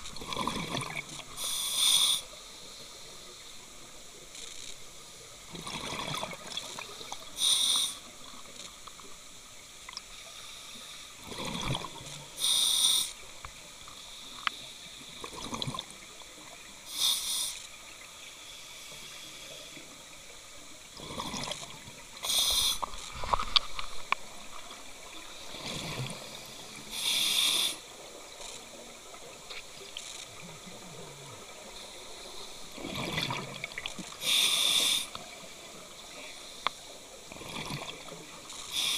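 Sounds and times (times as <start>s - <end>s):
exhaled bubbles underwater: 0.1s - 1.3s, 5.5s - 7.3s, 11.2s - 12.1s, 15.2s - 16.7s, 21.0s - 22.0s, 32.8s - 34.1s, 37.3s - 38.4s
diver breathing through regulator: 1.4s - 2.3s, 12.4s - 13.2s, 22.2s - 22.9s, 26.0s - 27.8s, 34.2s - 35.2s.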